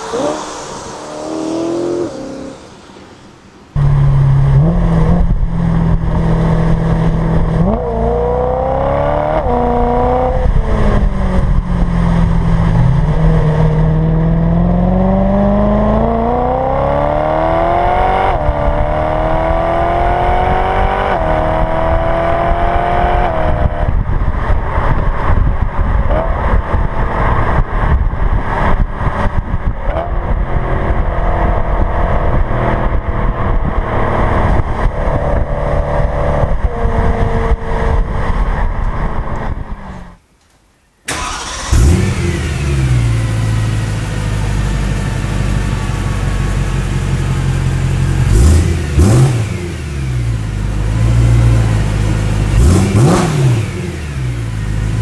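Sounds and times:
road and wind noise: 0:00.0 - 0:55.0
car engine accelerating through gears: 0:03.8 - 0:24.0, 0:41.1 - 0:43.8, 0:48.0 - 0:55.0.

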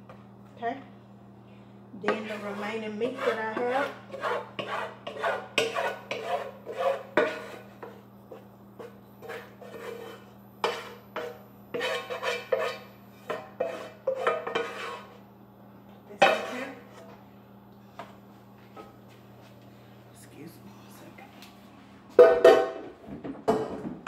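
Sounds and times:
utensil scraping frying pan: 0:02.0 - 0:15.3, 0:16.2 - 0:17.2.

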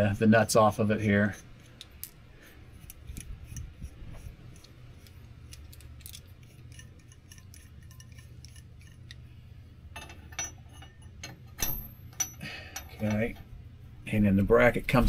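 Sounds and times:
steady low hum: 0:00.0 - 0:15.0
metallic clicks of nuts and bolts: 0:04.5 - 0:09.2, 0:09.9 - 0:13.5.

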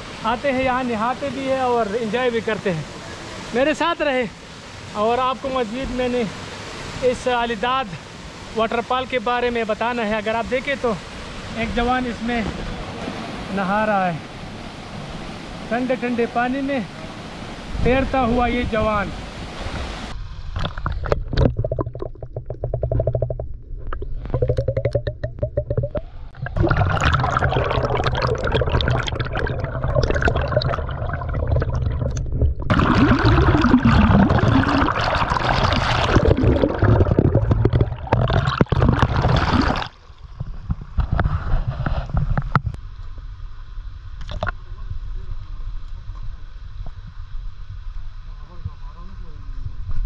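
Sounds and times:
underwater sloshing and bubbling: 0:19.2 - 0:48.1.

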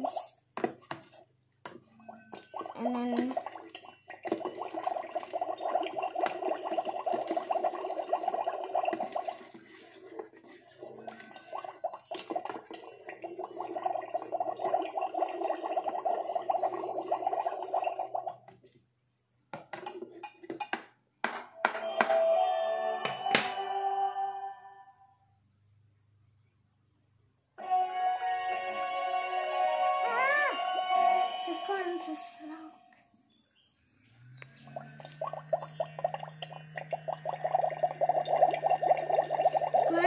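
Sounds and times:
toy bubbling sound effect: 0:02.0 - 0:18.5, 0:34.6 - 0:40.0.

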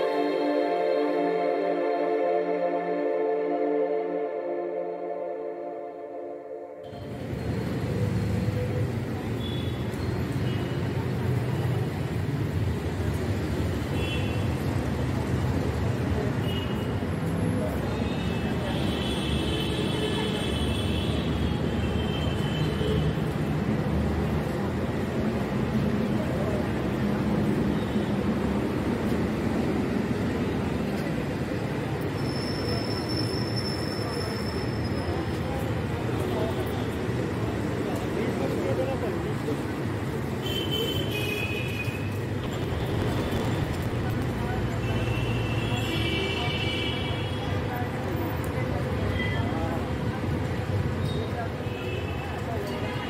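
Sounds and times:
street traffic rumble: 0:06.8 - 0:53.0
faint indistinct voices: 0:23.9 - 0:53.0.

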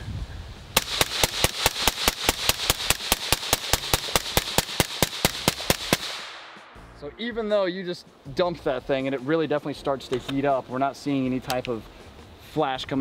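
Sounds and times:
suppressed rifle firing rapidly: 0:00.8 - 0:06.4.

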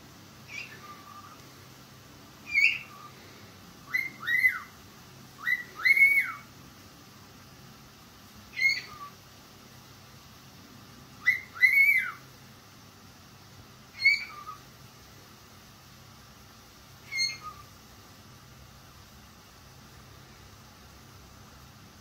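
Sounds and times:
cockatiel whistling: 0:00.5 - 0:01.4, 0:02.4 - 0:03.1, 0:03.8 - 0:04.7, 0:05.4 - 0:06.5, 0:08.5 - 0:09.2, 0:11.2 - 0:12.2, 0:13.9 - 0:14.6, 0:17.0 - 0:17.7.

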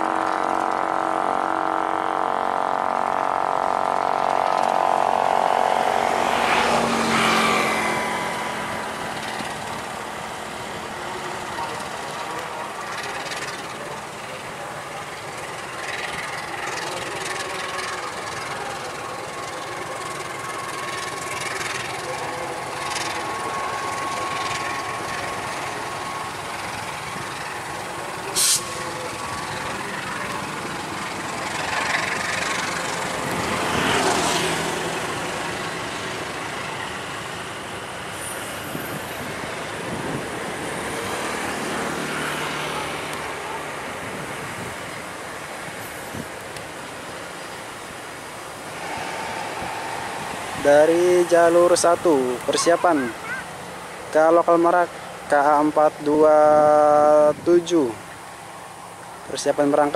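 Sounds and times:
train wheels rumbling on rails: 0:00.0 - 0:59.9
faint steady squeal: 0:07.2 - 0:33.0.

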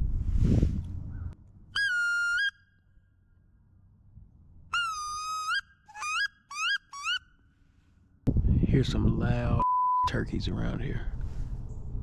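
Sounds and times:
duck call whistling squeals: 0:01.8 - 0:02.8, 0:04.7 - 0:07.4.

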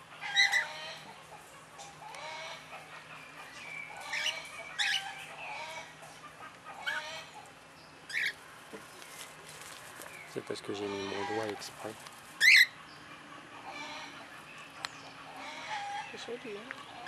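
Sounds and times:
parrot squawks: 0:00.2 - 0:01.0, 0:04.0 - 0:05.8, 0:12.4 - 0:12.8
soft bird chattering: 0:01.8 - 0:05.9, 0:08.1 - 0:09.2, 0:12.4 - 0:17.0.

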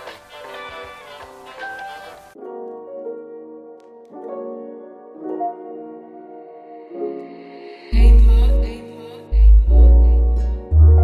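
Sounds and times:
deep bass note: 0:08.0 - 0:08.8, 0:09.4 - 0:11.0.

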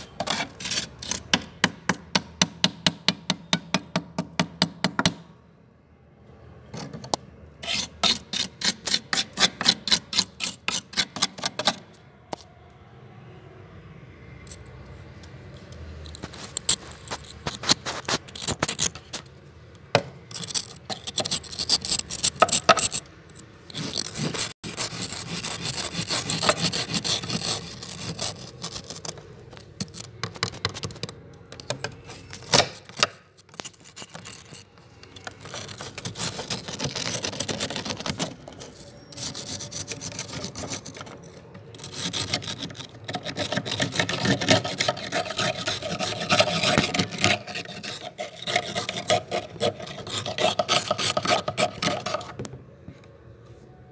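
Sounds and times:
tool scraping freezer frost: 0:00.0 - 0:03.9, 0:07.6 - 0:11.9, 0:16.1 - 0:19.3, 0:20.3 - 0:31.1, 0:31.9 - 0:52.4.

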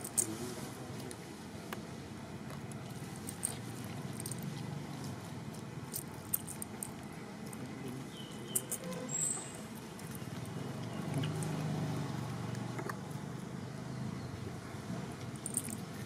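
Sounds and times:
steady outdoor hiss: 0:00.0 - 0:16.0
monkey chewing and handling food: 0:00.9 - 0:13.6.

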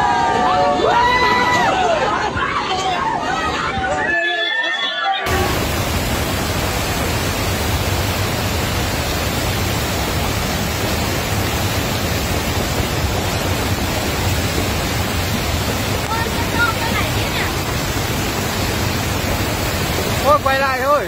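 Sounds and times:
river rushing roar: 0:05.3 - 0:21.0.

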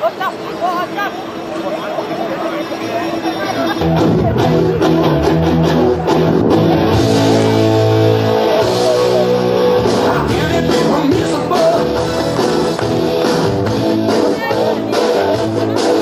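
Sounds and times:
loud rock music with singing: 0:03.8 - 0:16.0.

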